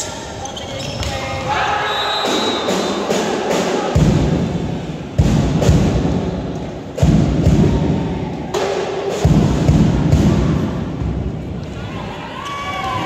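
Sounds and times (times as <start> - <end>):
deep heavy thuds echoing: 3.8 - 11.6.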